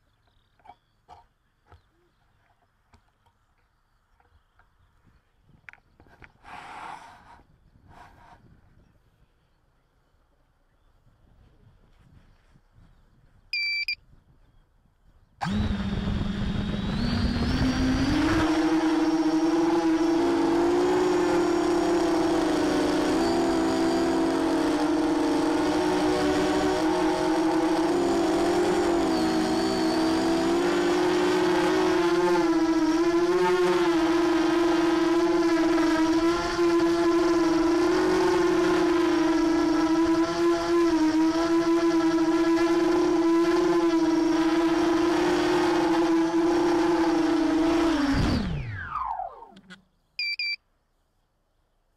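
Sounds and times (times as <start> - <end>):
short high beep: 13.6 - 14.0, 50.2 - 50.6
quadcopter motors buzzing whine: 15.4 - 49.8.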